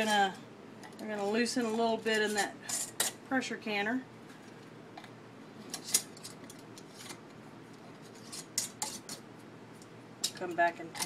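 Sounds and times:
metal rings scraping on jar threads: 1.0s - 3.1s.

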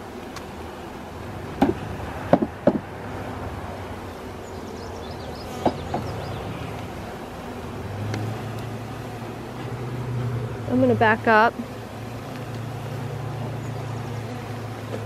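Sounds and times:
bees humming: 0.0s - 15.0s
box knocking against hive: 1.6s - 2.9s, 5.5s - 6.2s.

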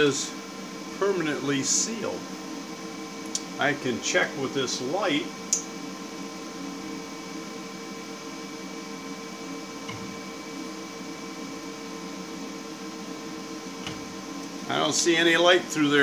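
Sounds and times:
workshop hum with tones: 0.0s - 16.0s.

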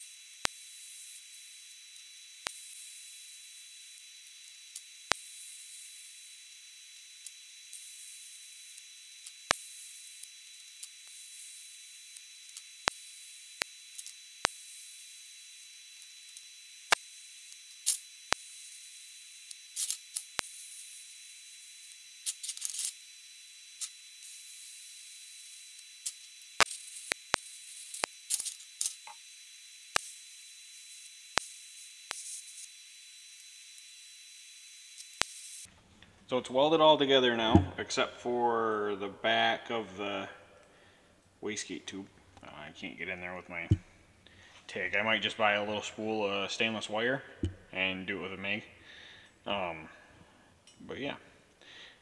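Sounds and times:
welding arc hissing: 0.0s - 35.7s
sharp clicks and crackles: 7.2s - 23.0s, 25.4s - 29.2s.

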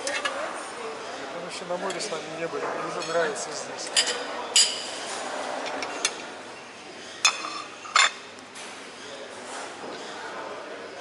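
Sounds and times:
dishes and cutlery clinking: 2.9s - 6.2s, 7.2s - 8.3s.

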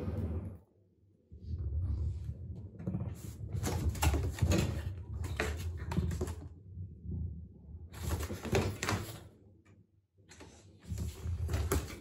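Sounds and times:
ball and paws tapping wooden floor: 2.5s - 6.5s, 8.0s - 9.2s, 10.8s - 12.0s.

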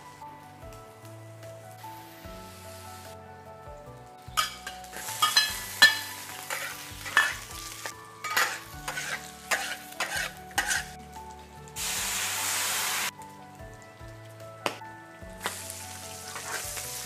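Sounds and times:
frying sizzle: 0.0s - 3.2s, 4.2s - 17.0s
spatula scraping a wok: 4.4s - 11.0s, 16.2s - 17.0s.

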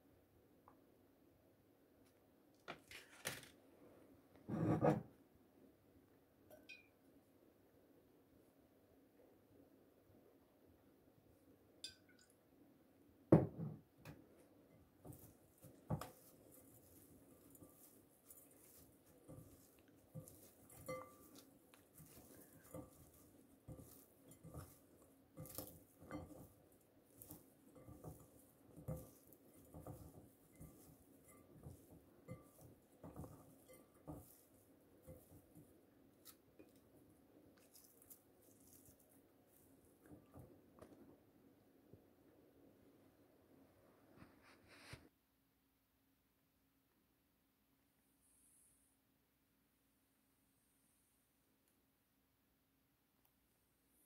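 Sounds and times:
hand mixing food in glass bowl: 13.8s - 41.3s.

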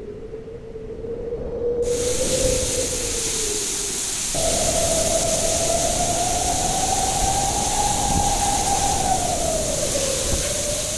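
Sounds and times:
storm wind blowing hard: 0.0s - 10.9s
heavy rain hissing: 1.9s - 10.9s
whistling howl: 4.4s - 10.9s.

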